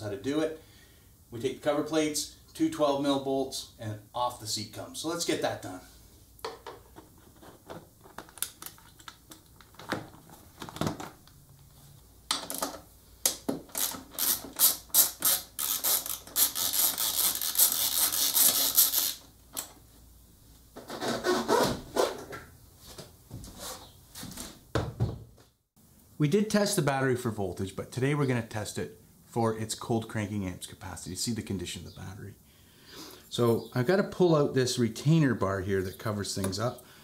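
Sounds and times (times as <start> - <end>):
socket ratchet clicking: 13.3 - 19.7.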